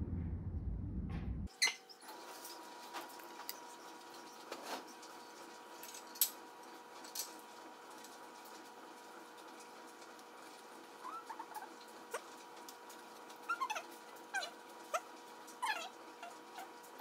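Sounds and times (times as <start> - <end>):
small animal squeaking: 11.0 - 12.2, 13.4 - 16.8.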